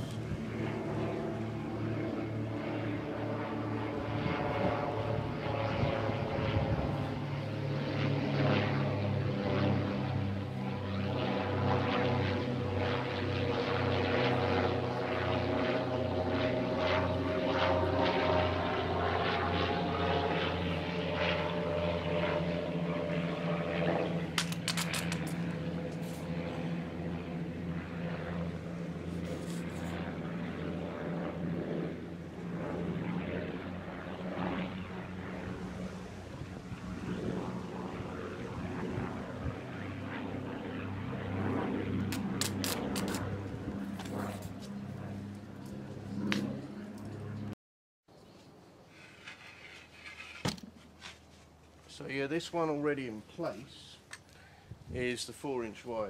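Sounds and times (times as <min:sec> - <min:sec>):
propeller aircraft droning: 0:00.0 - 0:56.0.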